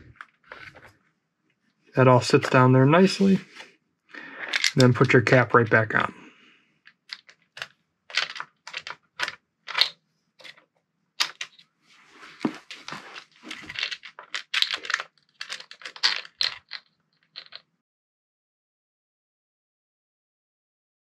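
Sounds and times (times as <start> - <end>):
clicks of small parts: 4.4 - 5.0, 6.8 - 10.6, 11.2 - 11.6, 12.6 - 17.7.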